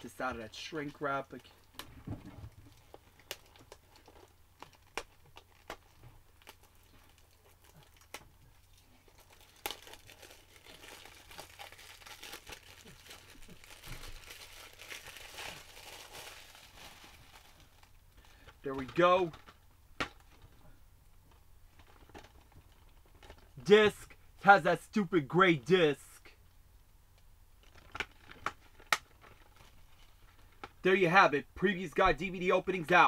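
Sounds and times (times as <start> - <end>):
shrink wrap crinkling and tearing: 0.0 - 20.6, 21.3 - 23.6, 27.6 - 30.8
sharp clicks of plastic wrap: 2.6 - 20.5, 27.6 - 30.8.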